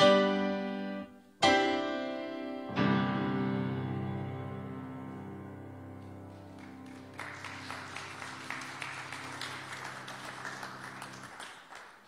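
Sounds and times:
keyboard chord: 0.0 - 6.3
congregation applauding: 6.2 - 12.0.

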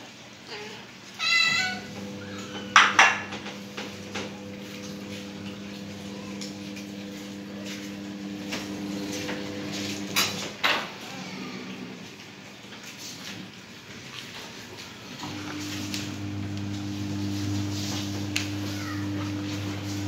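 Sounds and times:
food bowls clinking on tiled floor: 2.0 - 10.9.

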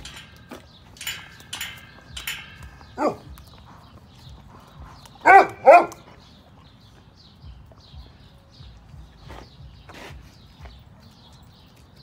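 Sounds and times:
dog barking: 5.2 - 6.0.

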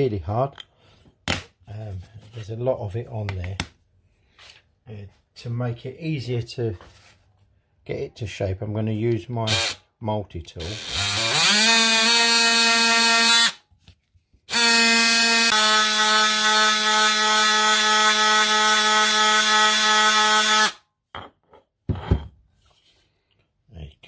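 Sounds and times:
oscillating multi-tool buzzing whine: 10.8 - 13.6, 14.5 - 20.8.

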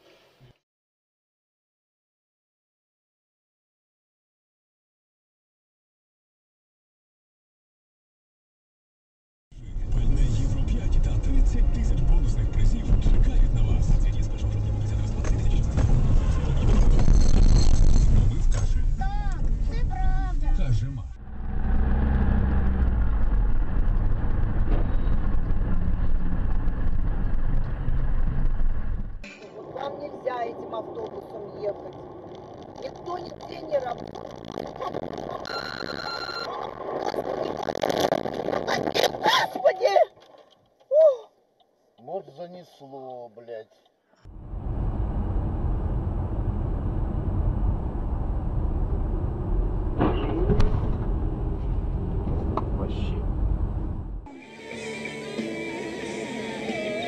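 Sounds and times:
car engine and road noise: 9.6 - 39.3, 44.2 - 57.0.

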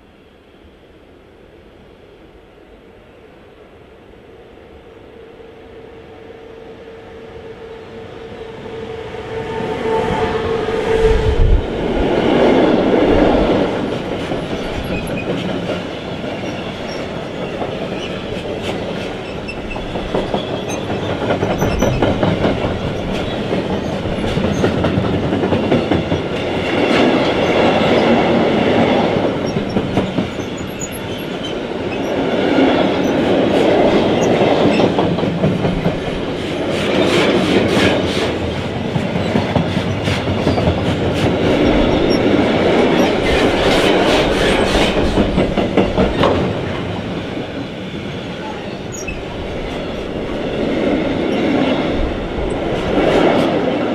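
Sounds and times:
freight train wheels clattering: 11.8 - 48.2.

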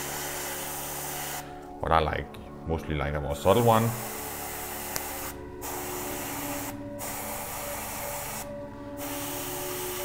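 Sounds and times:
airbrush spraying hiss: 0.0 - 1.5, 3.9 - 10.0.

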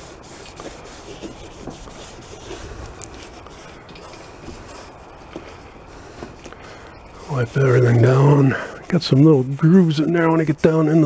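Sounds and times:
wet rag scrubbing plastic: 0.0 - 6.5, 7.2 - 11.0.

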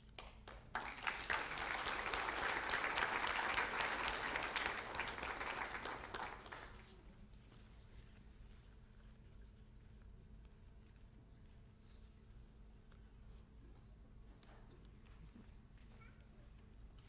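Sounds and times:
audience applauding: 0.2 - 6.9.

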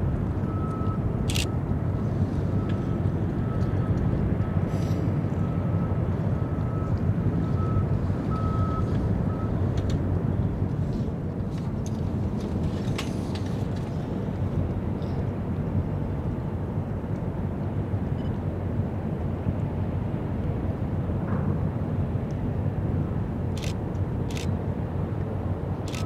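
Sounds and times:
harbour low rumble: 0.0 - 26.0.

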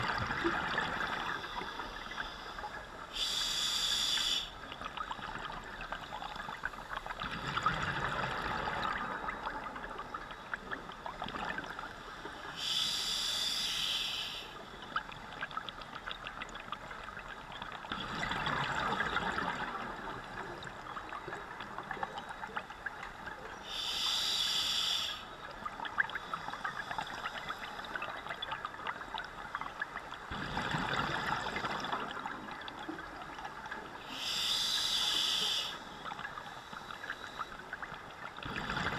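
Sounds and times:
exhaled bubbles gurgling: 0.0 - 12.0, 12.6 - 24.1, 25.4 - 38.9
regulator hiss on inhale: 1.2 - 4.7, 12.0 - 14.8, 23.6 - 25.4, 34.0 - 37.7.

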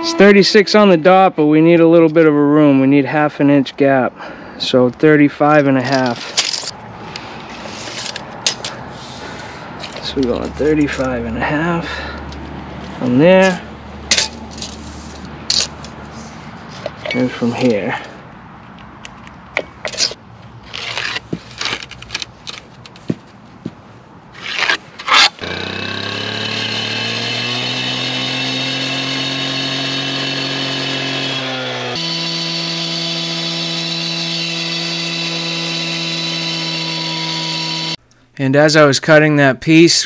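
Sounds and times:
cut-off saw cutting stone: 24.4 - 38.0.

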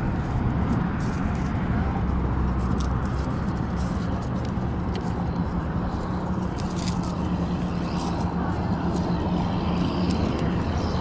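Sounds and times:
low engine drone: 0.0 - 11.0
rope scraping over concrete: 0.0 - 11.0.

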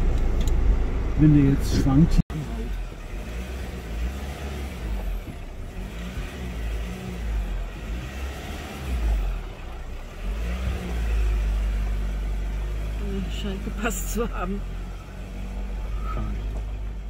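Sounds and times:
pickup truck engine rumbling: 0.0 - 17.0.

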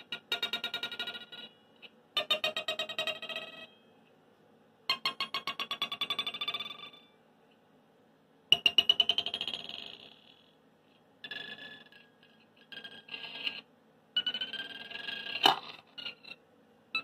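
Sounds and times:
buzzy vibrating metal rod: 0.0 - 3.9, 11.2 - 16.4.

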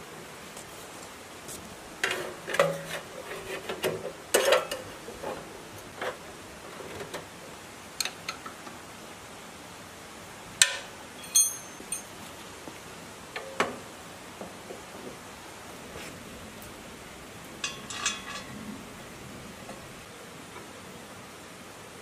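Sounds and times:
metal parts clicking and knocking: 10.6 - 12.1.

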